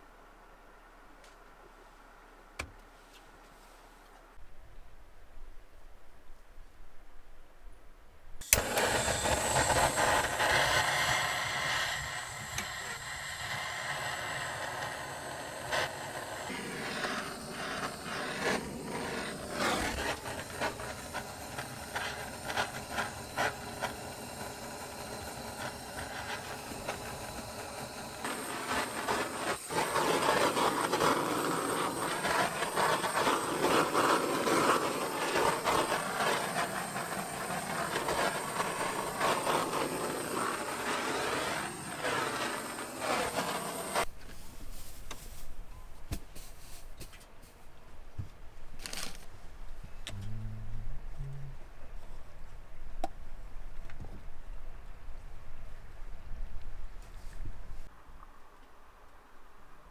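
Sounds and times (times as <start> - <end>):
butane torch hissing: 8.4 - 44.1
torch ignition click: 8.4 - 44.1.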